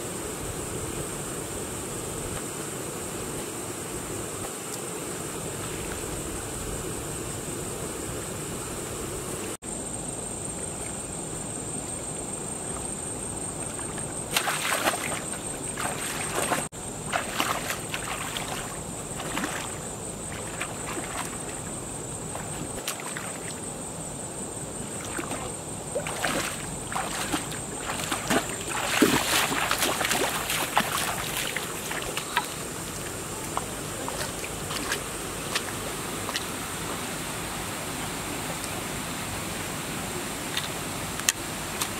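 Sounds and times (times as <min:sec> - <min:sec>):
steady high-pitched buzz: 0:00.0 - 0:41.8
feet wading and splashing: 0:13.6 - 0:23.6, 0:24.8 - 0:36.6
spear jabbing in water: 0:14.3 - 0:21.4.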